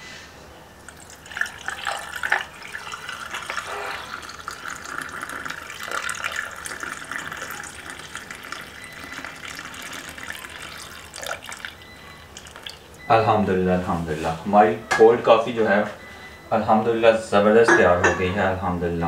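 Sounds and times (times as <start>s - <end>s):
coffee pouring over ice: 0.9s - 13.0s.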